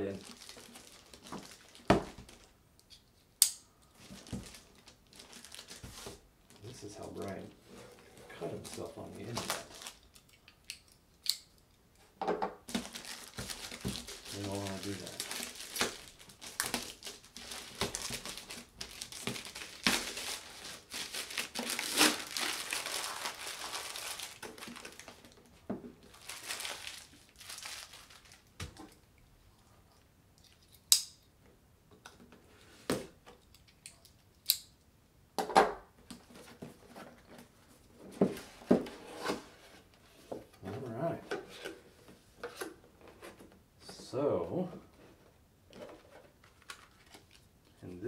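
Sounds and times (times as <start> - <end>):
plastic bag crinkling: 0.0 - 2.5, 4.0 - 7.4, 8.6 - 10.2, 12.7 - 28.5.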